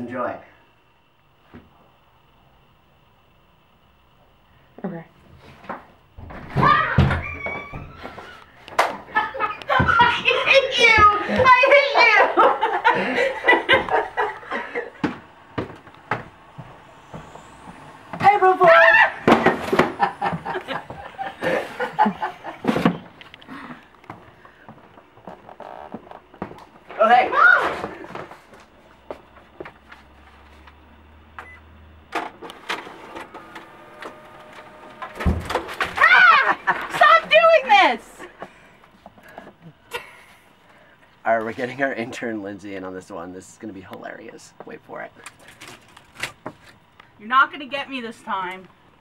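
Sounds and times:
photocopier humming and whining: 0:05.2 - 0:49.0
woman laughing: 0:09.1 - 0:15.2, 0:18.6 - 0:22.8, 0:36.0 - 0:38.5, 0:39.6 - 0:40.4.

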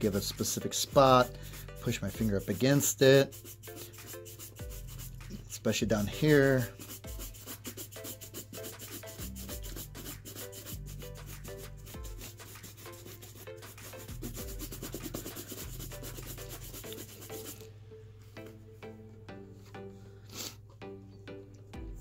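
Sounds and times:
shoe brush buffing leather: 0:01.0 - 0:05.2, 0:06.1 - 0:17.6.

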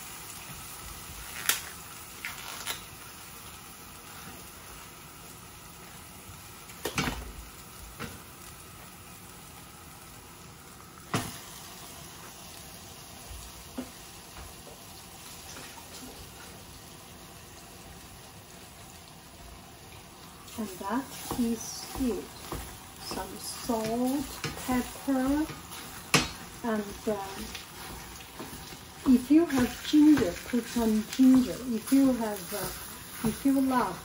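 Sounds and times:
meat sizzling in oil: 0:00.0 - 0:34.0
meat knocking into pan: 0:21.2 - 0:26.6.

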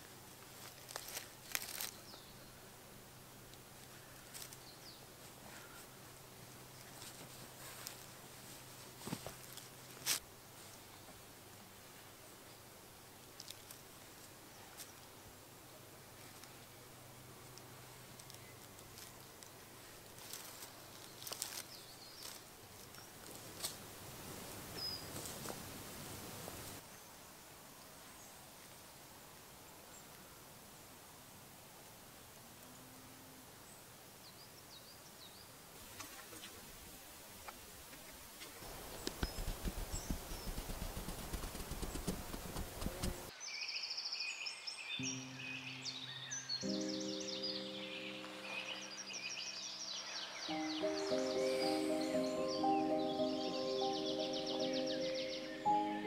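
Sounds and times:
soft rustles and clicks: 0:00.4 - 0:02.3, 0:03.5 - 0:11.2, 0:13.3 - 0:15.1, 0:17.4 - 0:26.8, 0:37.4 - 0:43.3
birds chirping: 0:38.0 - 0:56.0.

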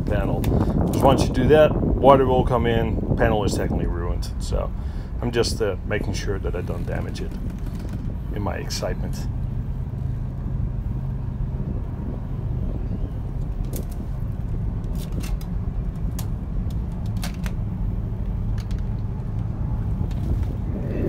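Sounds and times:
low outdoor rumble: 0:00.0 - 0:21.0
sharp clicks and knocks: 0:14.8 - 0:17.6, 0:18.2 - 0:20.6.

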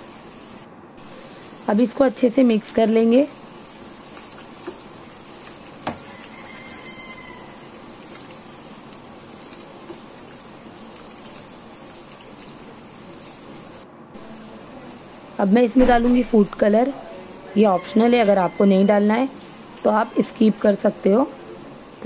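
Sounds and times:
onions sizzling in hot oil: 0:01.0 - 0:13.8.

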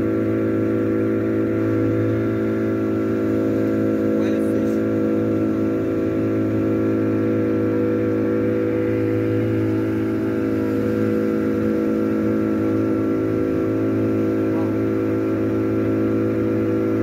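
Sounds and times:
motorboat engine droning: 0:00.0 - 0:17.0.

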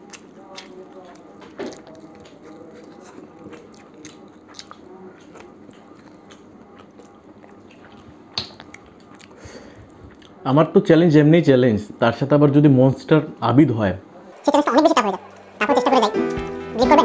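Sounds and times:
person chewing meat: 0:00.0 - 0:10.4
wet mouth clicks and smacks: 0:00.2 - 0:09.4.

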